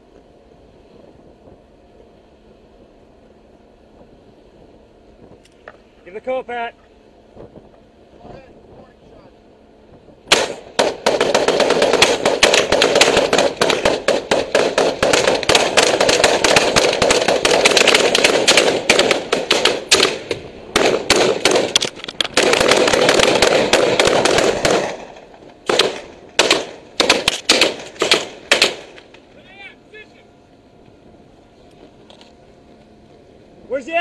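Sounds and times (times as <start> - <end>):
rapid rifle gunfire: 10.3 - 29.0.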